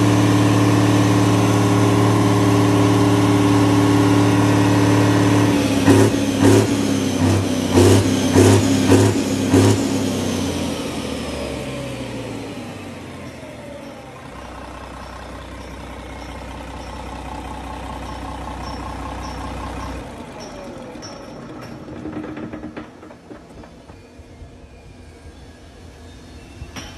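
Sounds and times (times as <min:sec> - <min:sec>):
diesel engine running: 0:00.0 - 0:26.4.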